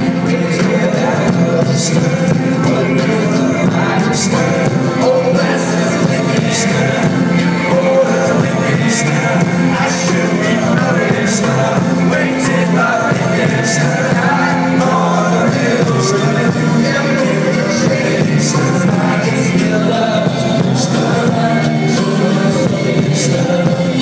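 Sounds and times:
band playing live: 0.0s - 24.0s
person singing: 0.0s - 24.0s.

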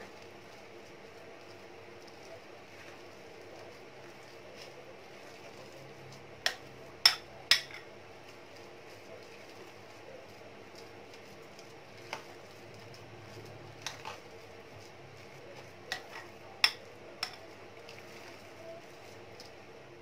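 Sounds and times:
spoon clinking against glass bowl: 6.5s - 7.9s.

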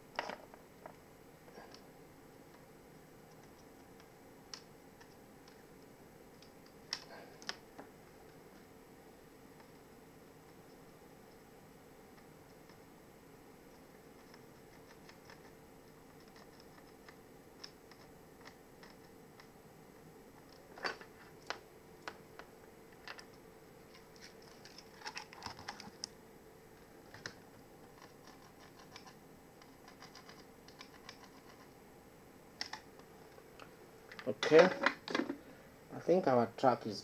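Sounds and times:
steady faint hum: 0.0s - 37.0s.

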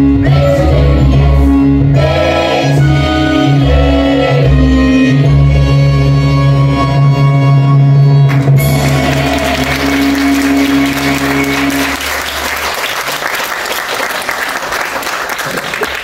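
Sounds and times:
music with long held notes: 0.0s - 12.6s
audience applauding: 8.3s - 16.0s.

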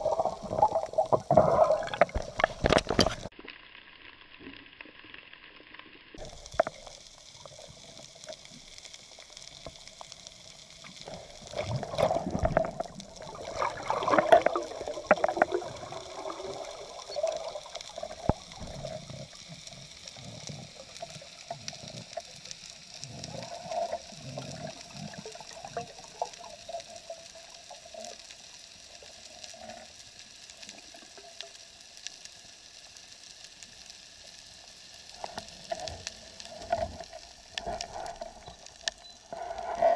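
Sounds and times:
water rushing and gurgling underwater: 0.0s - 39.9s.

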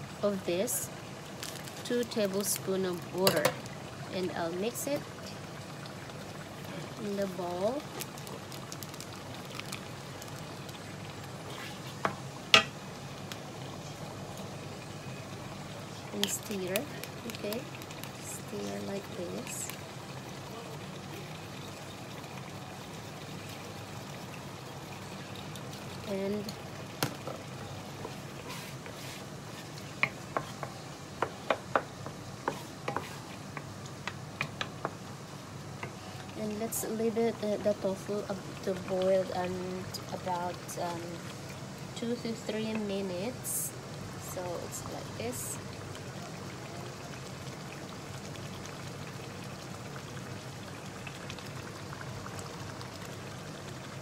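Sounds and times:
wooden spatula scraping frying pan: 32.4s - 33.3s.

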